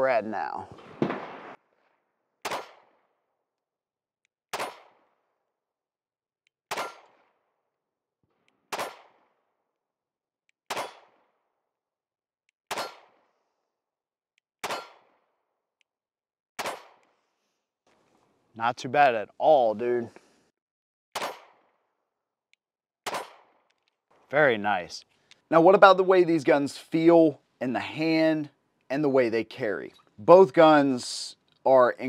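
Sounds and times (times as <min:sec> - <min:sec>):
pistol shots: 0:00.7 - 0:01.6, 0:02.4 - 0:03.1, 0:04.5 - 0:05.2, 0:06.7 - 0:07.4, 0:08.7 - 0:09.5, 0:10.7 - 0:11.4, 0:12.7 - 0:13.4, 0:14.6 - 0:15.3, 0:16.6 - 0:17.2, 0:21.2 - 0:21.8, 0:23.0 - 0:23.6.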